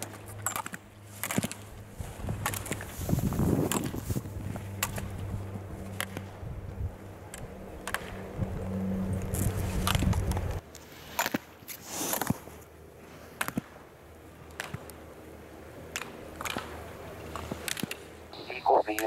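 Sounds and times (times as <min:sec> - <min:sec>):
steady low hum: 0:00.0 - 0:10.7
skis scraping on snow: 0:02.0 - 0:05.1, 0:10.8 - 0:12.6.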